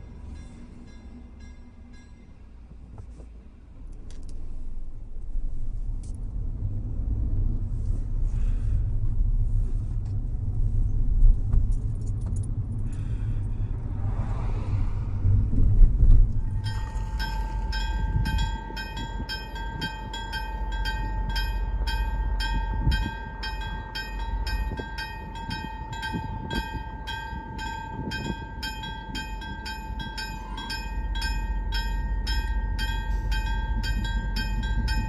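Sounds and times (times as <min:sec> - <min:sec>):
level crossing warning bell: 0:00.0 - 0:02.7, 0:16.4 - 0:35.0
road and engine rumble: 0:00.0 - 0:35.0
steady warning tone: 0:16.3 - 0:35.0.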